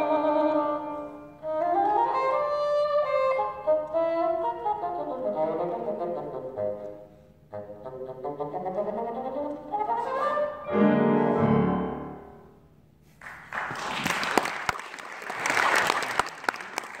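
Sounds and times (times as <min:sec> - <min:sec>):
bassoon: 0:00.0 - 0:12.6
piano: 0:09.8 - 0:12.8
audience applause: 0:13.2 - 0:17.0.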